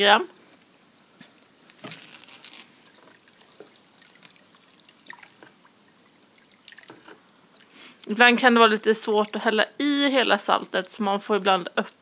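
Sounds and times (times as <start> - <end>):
water dripping and sloshing: 1.0 - 7.7.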